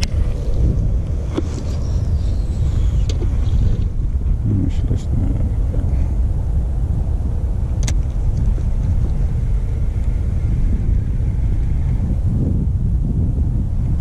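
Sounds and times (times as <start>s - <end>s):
wind buffeting microphone: 0.0s - 14.0s
sharp click: 7.8s - 8.1s.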